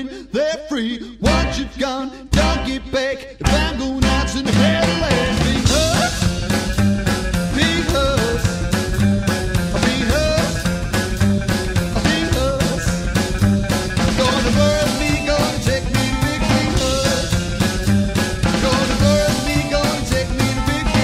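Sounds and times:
bass guitar: 1.1s - 21.0s
electric guitar lead line: 1.2s - 21.0s
drum beat: 3.5s - 21.0s.

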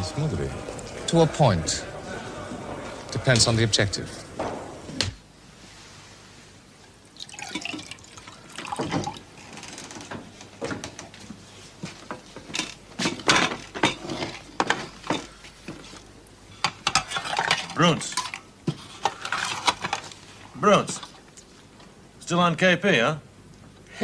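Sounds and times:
dishes and cutlery clinking: 12.1s - 16.0s, 16.6s - 20.1s.

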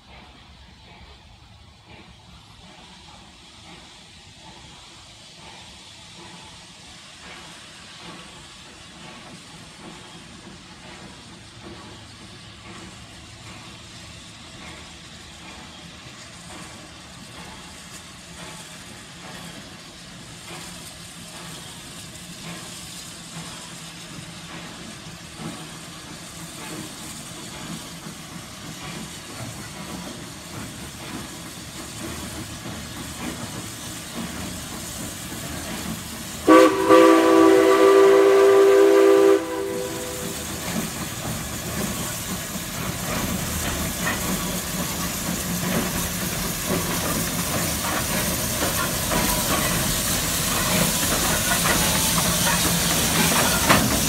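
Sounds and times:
steam locomotive running: 0.0s - 54.0s
steam whistle blast: 36.4s - 40.6s.

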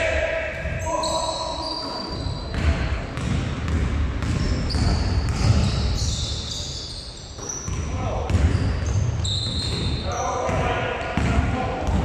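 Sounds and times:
sneakers squeaking: 0.5s - 12.0s
basketball bouncing on floor: 2.5s - 5.8s, 10.5s - 12.0s.

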